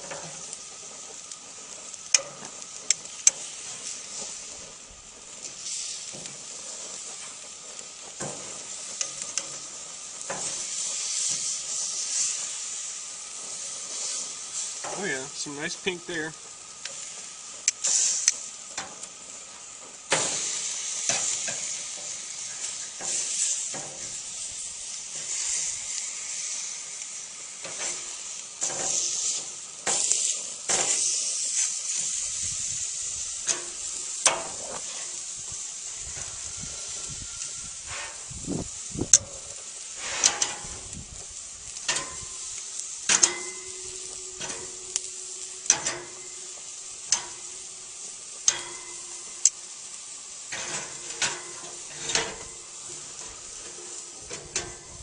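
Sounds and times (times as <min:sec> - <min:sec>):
meat sizzling on a grill: 0:00.0 - 0:55.0
metal tongs clicking and scraping: 0:43.1 - 0:46.4, 0:53.2 - 0:54.9.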